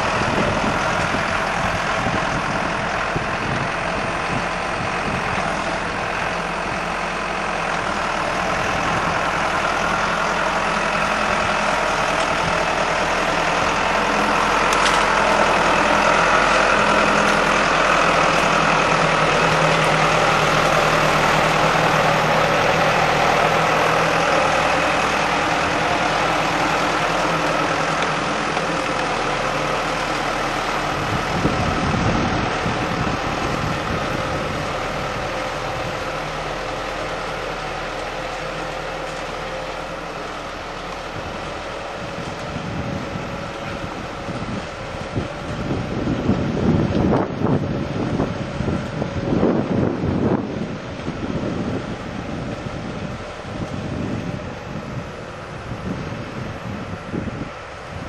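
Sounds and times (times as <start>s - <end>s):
tractor diesel engine running: 0.0s - 58.0s.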